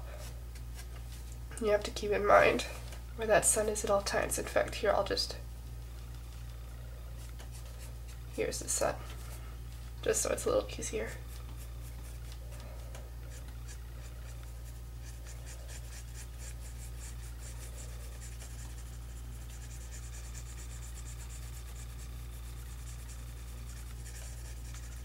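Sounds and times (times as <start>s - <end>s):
steady low hum: 0.0s - 25.0s
pencil scratching on paper: 13.2s - 25.0s.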